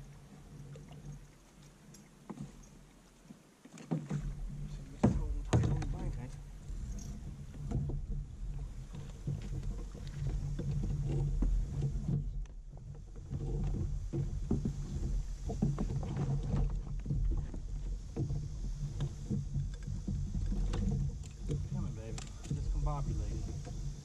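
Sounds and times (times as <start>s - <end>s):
water sloshing against hulls: 0.0s - 24.0s
small knocks and clicks: 8.9s - 23.8s
steady low rumble: 17.2s - 24.0s.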